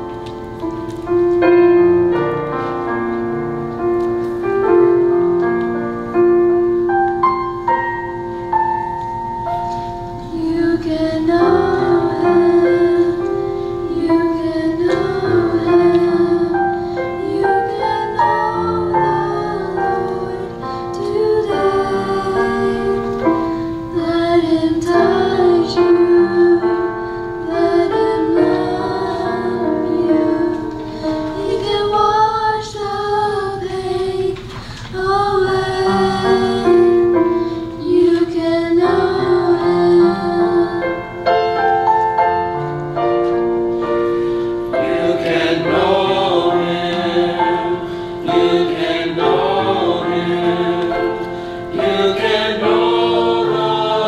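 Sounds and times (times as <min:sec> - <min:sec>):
choir singing: 0:10.2 - 0:34.2, 0:35.0 - 0:41.9, 0:44.5 - 0:54.0.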